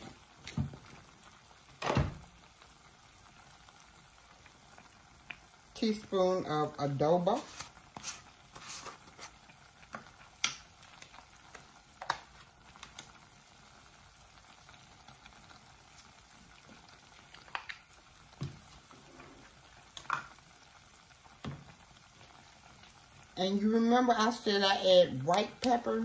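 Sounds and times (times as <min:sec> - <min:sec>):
faint steady hiss: 0:00.0 - 0:26.0.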